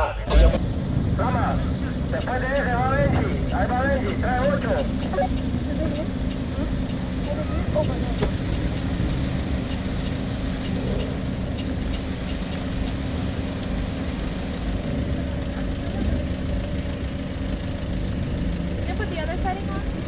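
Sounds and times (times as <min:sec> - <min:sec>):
car engine idling: 0:00.0 - 0:20.0
faint ticks: 0:05.0 - 0:07.4, 0:09.6 - 0:13.0.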